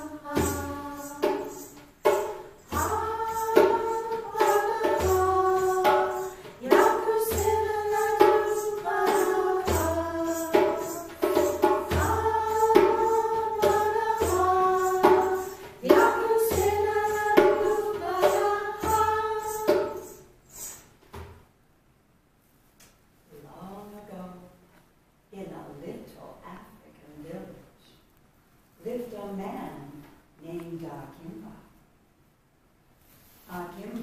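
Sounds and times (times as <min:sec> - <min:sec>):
women singing together: 0:00.0 - 0:20.7
percussion beat: 0:00.0 - 0:21.0.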